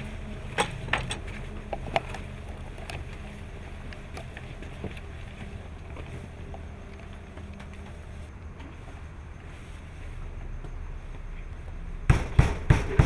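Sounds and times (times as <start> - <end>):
gear clicks and knocks: 0.0 - 8.7
low steady hum: 0.0 - 13.0.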